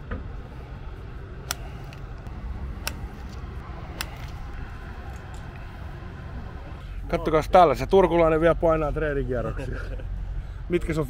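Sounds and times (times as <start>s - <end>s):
sharp clicks: 1.4s - 4.4s.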